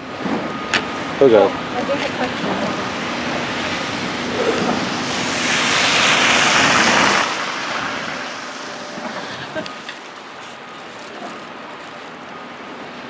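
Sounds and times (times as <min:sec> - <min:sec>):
wind gusting over microphone: 0:00.1 - 0:09.9.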